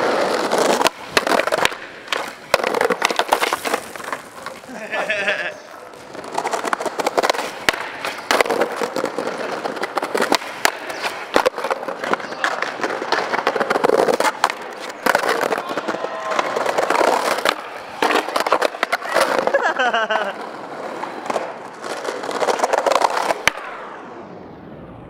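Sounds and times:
skateboard wheels rumbling on brick: 0:00.0 - 0:24.1.

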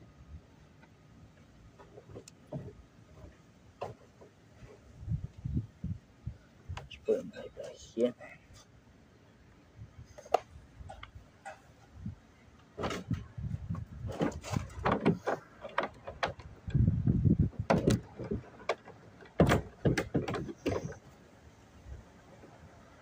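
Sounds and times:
irregular clicks knocks and scrapes: 0:00.8 - 0:05.5, 0:10.0 - 0:12.0, 0:12.6 - 0:21.2
dull low thumping: 0:16.3 - 0:18.4.

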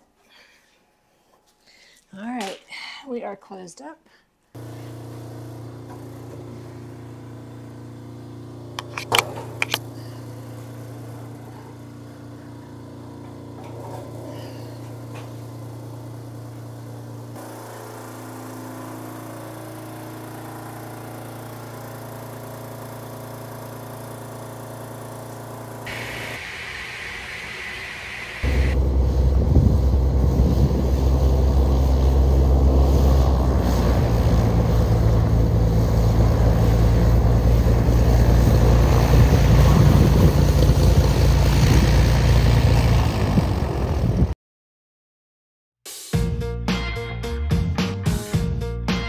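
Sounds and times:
air compressor humming: 0:04.6 - 0:44.3.

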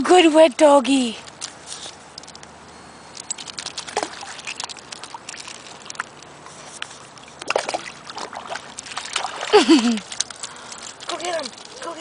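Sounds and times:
dog paws splashing through mud: 0:03.2 - 0:12.0.

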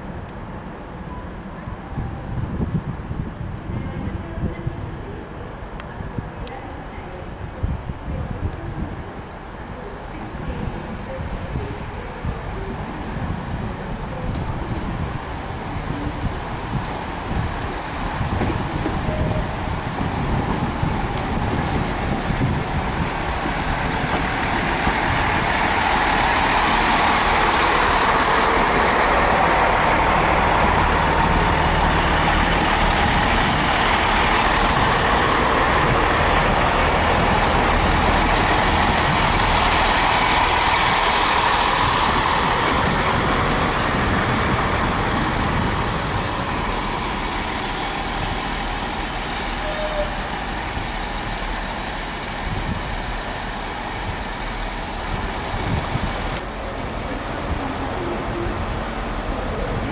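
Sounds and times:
diesel train engine rumble: 0:00.0 - 0:59.9
wheel and rail noise: 0:03.4 - 0:59.9.

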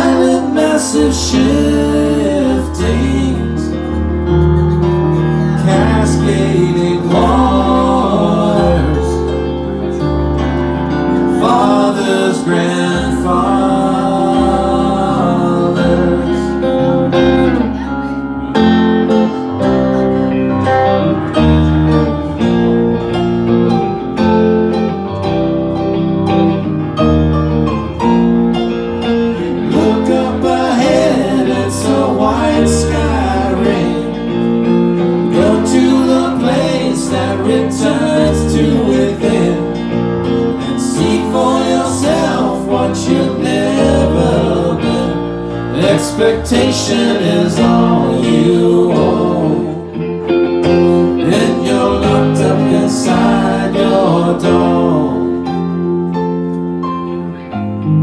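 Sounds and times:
person singing: 0:00.0 - 0:03.8, 0:05.4 - 0:10.0, 0:11.2 - 0:21.8, 0:29.3 - 0:39.9, 0:40.7 - 0:55.7
electric guitar: 0:00.0 - 0:58.0
keyboard: 0:00.0 - 0:58.0.

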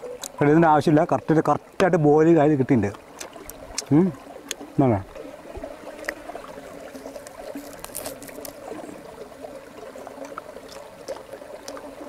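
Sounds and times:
river water trickling over rocks: 0:00.0 - 0:12.0
faint chewing clicks: 0:02.8 - 0:04.7, 0:05.9 - 0:06.2, 0:06.9 - 0:09.0, 0:09.8 - 0:12.0.

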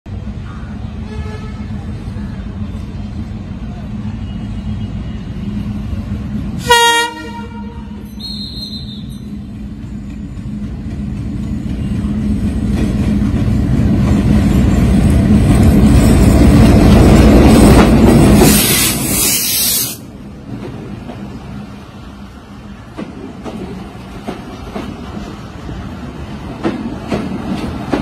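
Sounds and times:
diesel locomotive engine rumble: 0:00.1 - 0:28.0
train horn blast: 0:01.0 - 0:01.9, 0:06.6 - 0:09.2.

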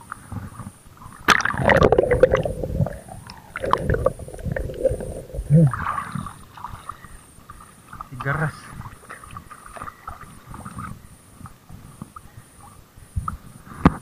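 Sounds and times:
dull hum: 0:00.1 - 0:08.0
muffled underwater sloshing: 0:00.2 - 0:13.2
water splashing: 0:01.1 - 0:11.0.

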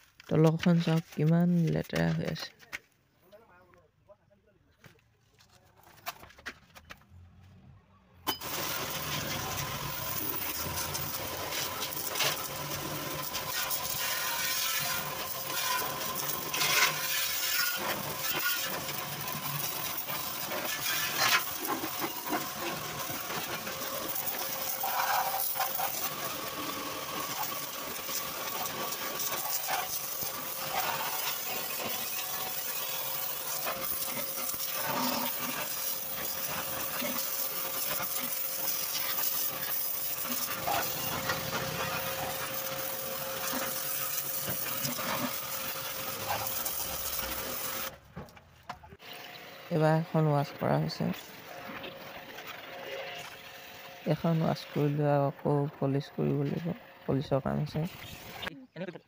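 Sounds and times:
pressure washer spraying water: 0:08.3 - 0:47.9.

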